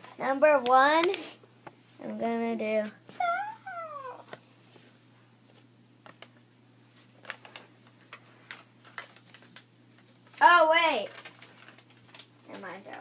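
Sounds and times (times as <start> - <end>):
faint taps and handling noises: 4.2 - 10.4.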